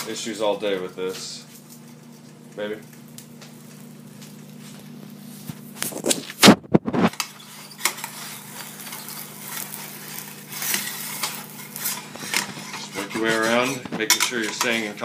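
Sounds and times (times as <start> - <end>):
metal spatula scraping a pan: 7.0 - 15.0.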